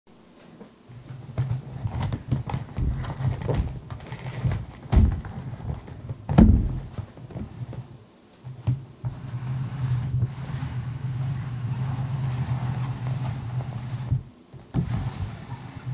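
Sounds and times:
handling knocks and thumps: 0:00.5 - 0:09.2.

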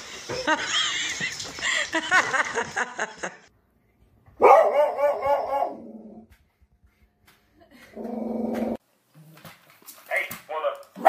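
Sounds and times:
dog barking and yelping: 0:04.4 - 0:05.9.

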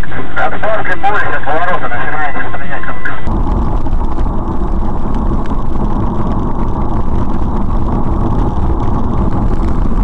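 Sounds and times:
car engine rumble: 0:03.3 - 0:10.0
road noise: 0:03.3 - 0:10.0.

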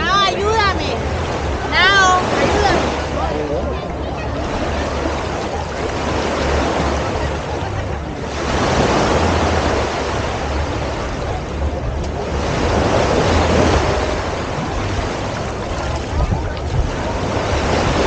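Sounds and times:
small waves washing on beach: 0:00.0 - 0:18.0
wind buffeting microphone: 0:00.0 - 0:18.0.

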